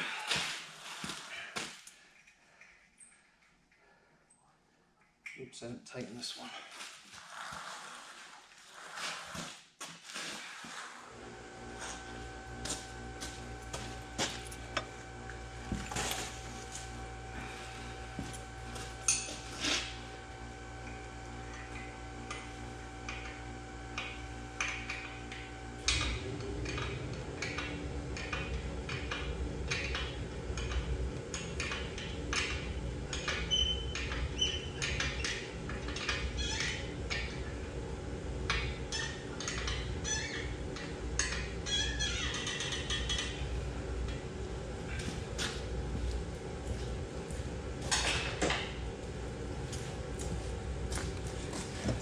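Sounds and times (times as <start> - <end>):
steady hum: 11.0 - 52.0.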